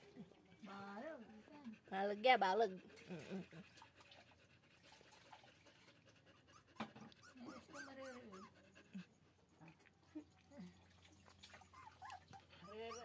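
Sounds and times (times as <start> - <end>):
puppies whimpering: 6.4 - 9.2, 11.6 - 13.0.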